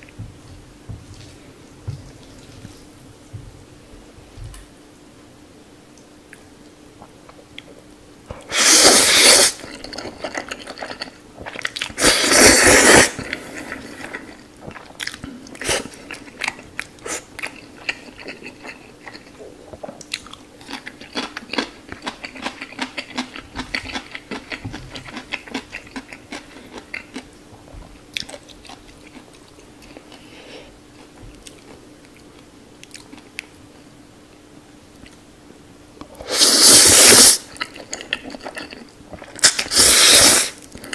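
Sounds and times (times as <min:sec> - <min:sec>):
man slurping noodles: 0:08.5 - 0:09.6, 0:12.0 - 0:13.2, 0:36.2 - 0:37.4, 0:39.4 - 0:40.6.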